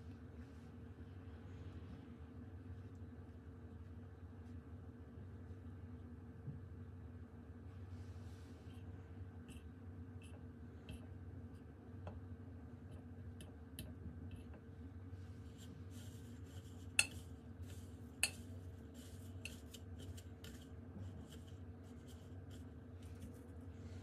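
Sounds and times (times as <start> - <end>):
fork scraping through breadcrumbs: 15.5 - 23.6.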